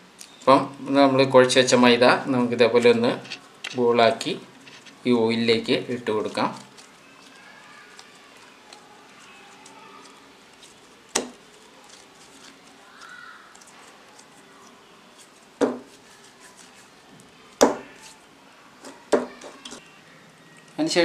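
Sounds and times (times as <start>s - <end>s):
dough balls thudding into bowl: 11.1s - 11.4s, 15.6s - 15.9s, 17.6s - 18.0s.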